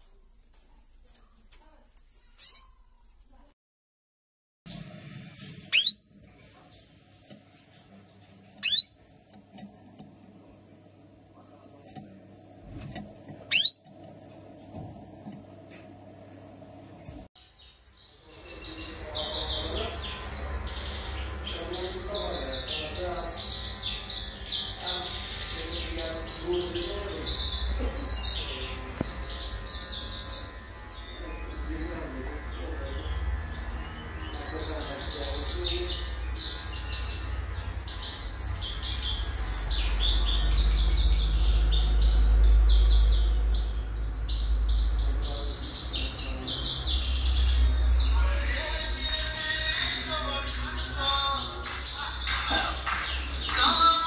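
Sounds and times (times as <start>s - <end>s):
canary singing: 2.2s - 2.9s, 5.6s - 6.3s, 8.4s - 9.4s, 13.4s - 14.2s, 17.3s - 54.0s.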